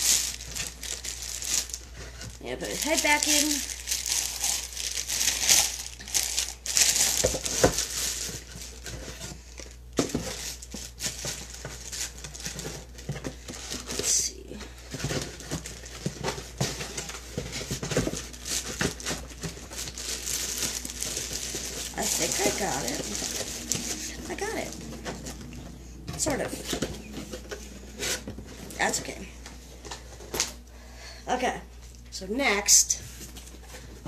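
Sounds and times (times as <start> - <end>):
plastic wrapping crinkling: 0.0 - 30.6.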